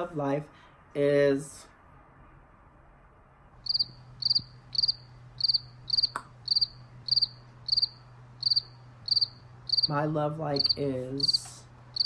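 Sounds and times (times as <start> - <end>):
cricket chirping: 3.6 - 9.9, 10.6 - 12.0.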